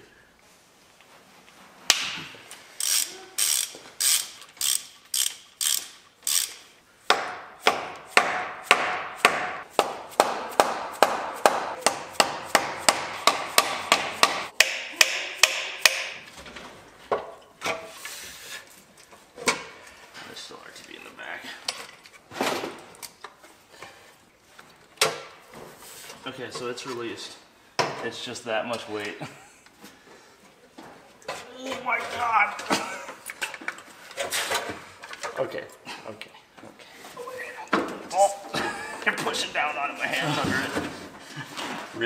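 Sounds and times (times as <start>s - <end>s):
ratchet wrench clicking: 2.8s - 6.7s.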